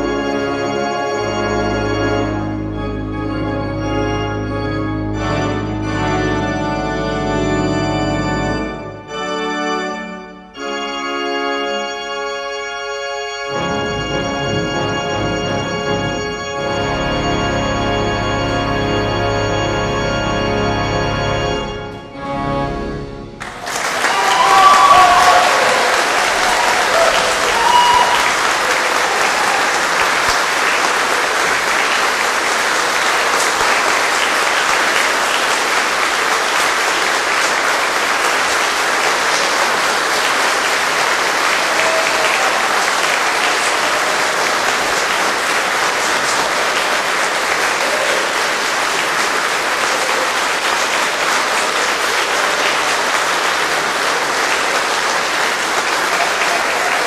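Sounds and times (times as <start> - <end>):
large audience applauding: 23.4 - 57.0.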